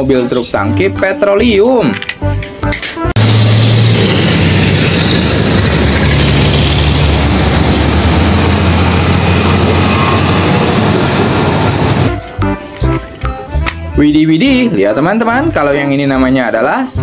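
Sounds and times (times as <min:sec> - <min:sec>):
road noise: 0:03.2 - 0:12.2
truck engine driving past: 0:03.2 - 0:12.2.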